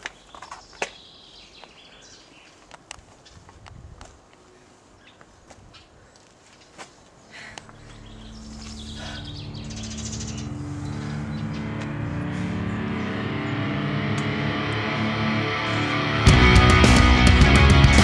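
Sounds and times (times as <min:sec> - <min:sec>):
birds chirping faintly: 0:00.0 - 0:03.6, 0:04.2 - 0:13.9
rock music sustained chords: 0:07.6 - 0:18.0.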